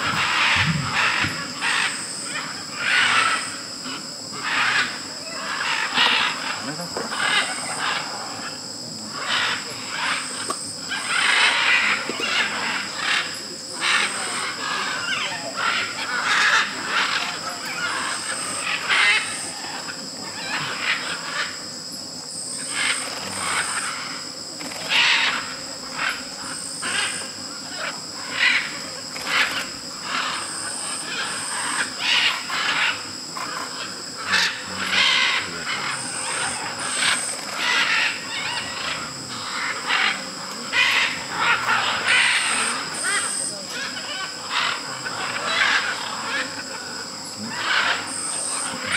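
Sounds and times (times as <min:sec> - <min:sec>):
macaws squawking: 0:00.0 - 0:21.6, 0:22.5 - 0:48.9
insects droning: 0:00.0 - 0:48.9.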